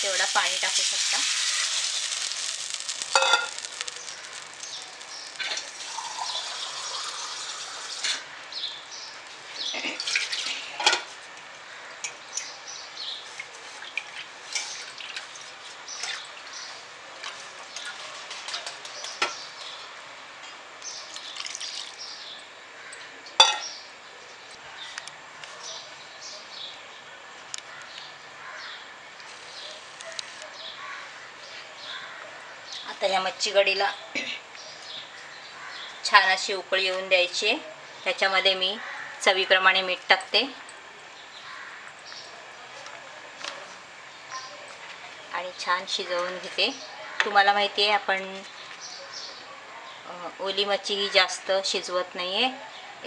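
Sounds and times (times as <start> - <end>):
pan hissing on stove: 0.0 - 8.2
liquid bubbling and popping: 1.6 - 7.1.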